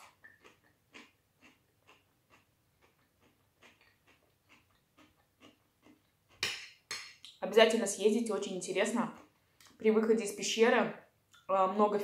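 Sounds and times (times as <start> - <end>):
chewing crunchy cabbage: 0.0 - 6.4, 8.9 - 9.8.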